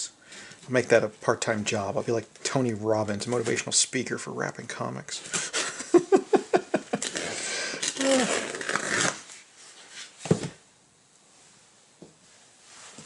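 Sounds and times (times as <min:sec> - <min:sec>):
cardboard thump on table: 0:10.2 - 0:10.6.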